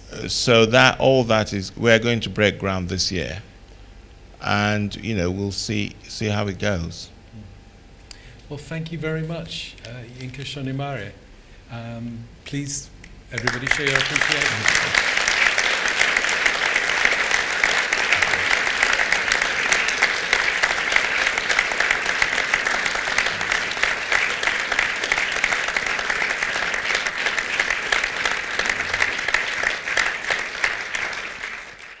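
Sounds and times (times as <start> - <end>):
audience applauding: 13.4 - 32.0.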